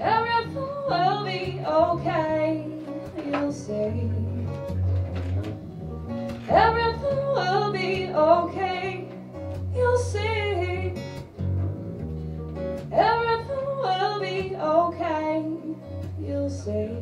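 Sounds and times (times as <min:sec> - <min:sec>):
woman singing: 0:00.0 - 0:04.7, 0:06.4 - 0:11.2, 0:12.9 - 0:17.0
strummed acoustic guitar: 0:00.0 - 0:17.0
double bass low notes: 0:03.5 - 0:17.0.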